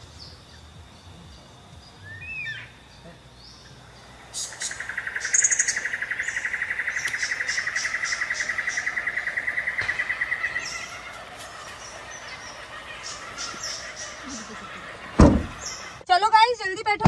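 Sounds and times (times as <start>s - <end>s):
birds chirping: 0.0s - 16.8s
rapid animal trill: 4.0s - 16.0s.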